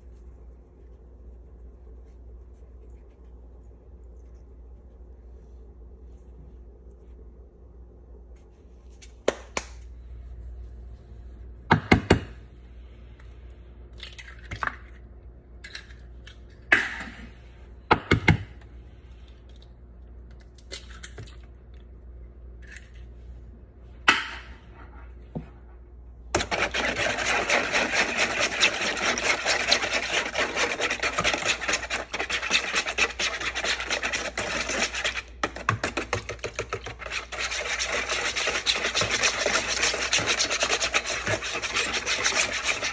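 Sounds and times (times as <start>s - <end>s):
whisk beating in plastic bowl: 26.3s - 42.9s.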